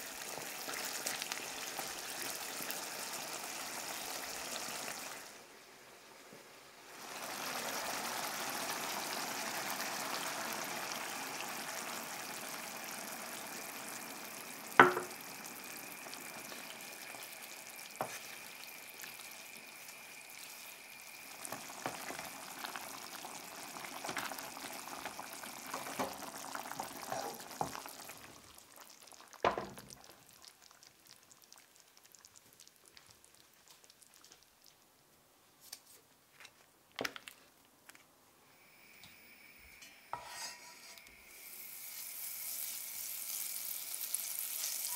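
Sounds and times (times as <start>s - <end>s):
sauce sizzling in a frying pan: 0.0s - 34.8s, 40.1s - 44.9s
sharp knock: 14.8s - 15.1s
wooden spatula scraping a pan: 40.1s - 41.1s.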